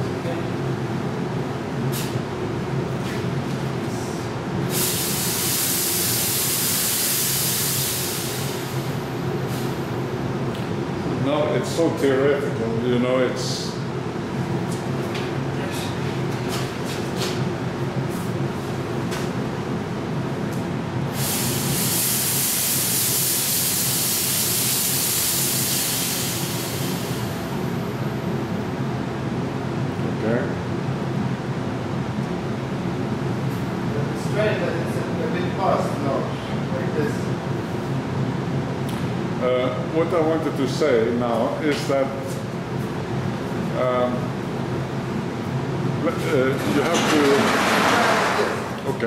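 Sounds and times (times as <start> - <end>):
extraction fan humming: 0.0 - 49.0
loud smoke hiss: 4.6 - 9.8, 21.1 - 27.5.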